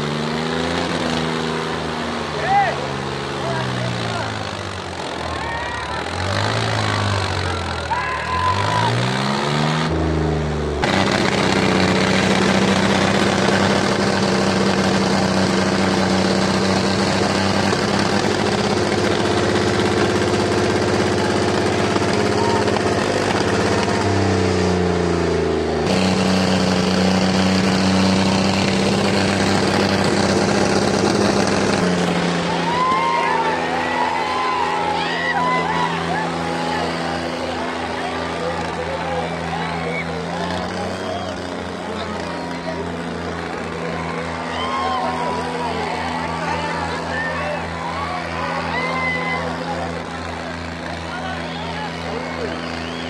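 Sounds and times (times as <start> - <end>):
tractor engine revving: 0.0 - 53.0.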